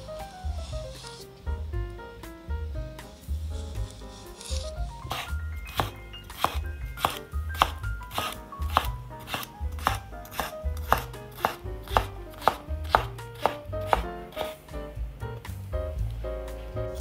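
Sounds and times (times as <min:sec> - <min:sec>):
background music: 0:00.0 - 0:17.0
knife chopping on wooden board: 0:04.5 - 0:14.6.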